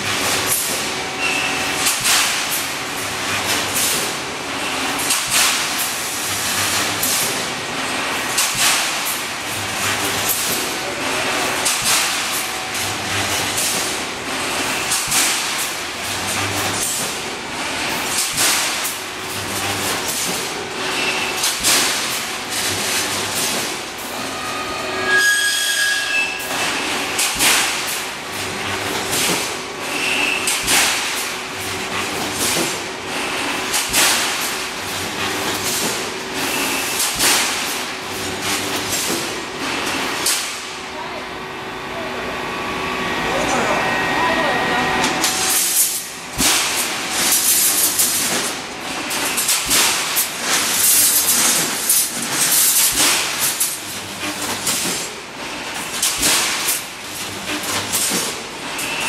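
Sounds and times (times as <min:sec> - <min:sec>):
short high squeal: 0:24.2 - 0:26.5.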